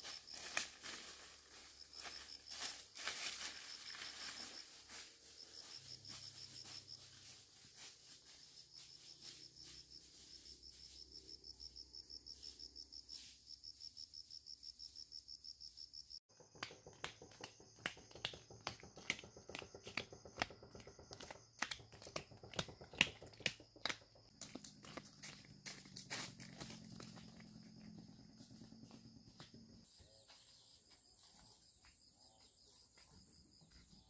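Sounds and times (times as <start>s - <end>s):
insects trilling: 0.0s - 16.2s
sharp clicks and taps: 16.3s - 25.0s.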